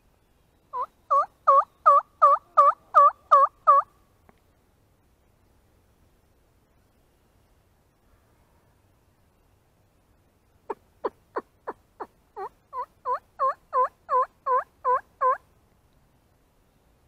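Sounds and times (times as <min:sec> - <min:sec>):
turkey yelping: 0:00.8 - 0:03.9, 0:10.7 - 0:15.4.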